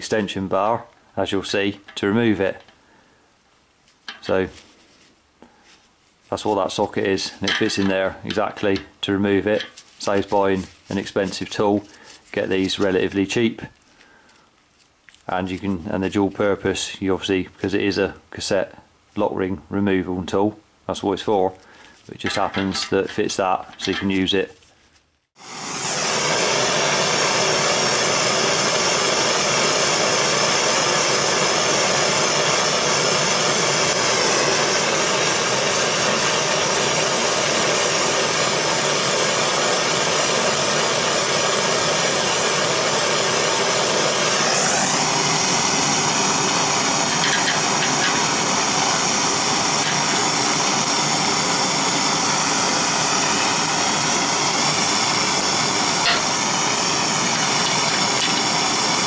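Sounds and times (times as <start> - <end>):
gas blowtorch hissing: 25.4 - 59.0.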